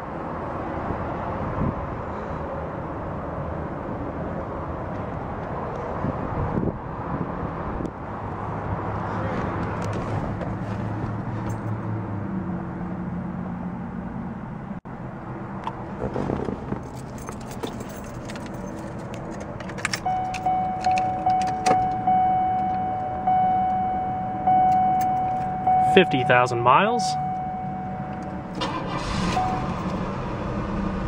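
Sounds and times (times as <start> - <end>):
keys jangling on key ring: 16.9 - 21.6
car warning chime dinging: 19.9 - 29.9.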